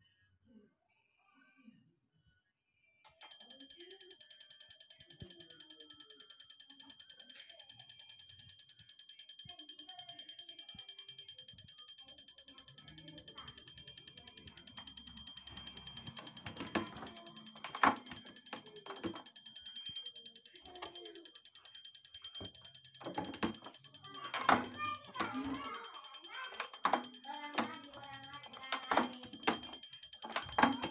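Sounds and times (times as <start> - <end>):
knocks and clicks: 10.7 - 30.9
diesel injector ticking: 11.1 - 30.9.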